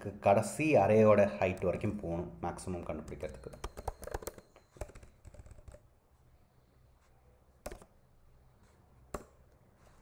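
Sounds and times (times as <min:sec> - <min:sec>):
computer keyboard typing: 0:02.8 - 0:05.9, 0:07.6 - 0:08.0.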